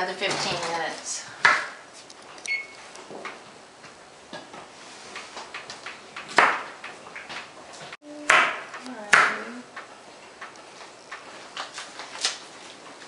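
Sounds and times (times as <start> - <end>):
oven keypad beep: 2.4 - 2.9.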